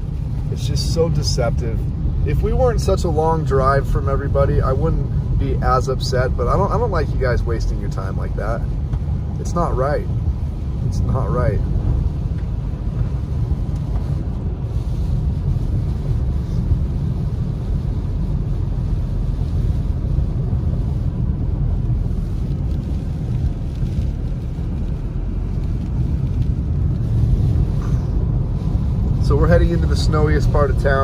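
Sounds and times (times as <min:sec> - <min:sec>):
tyre noise on wet road: 0:00.0 - 0:31.0.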